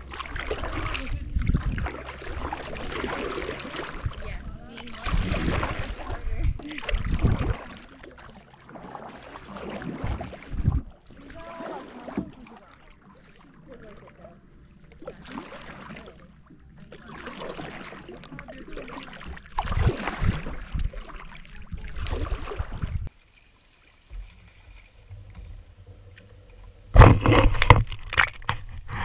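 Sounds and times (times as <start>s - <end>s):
kayak paddle strokes in water: 0.0s - 29.0s.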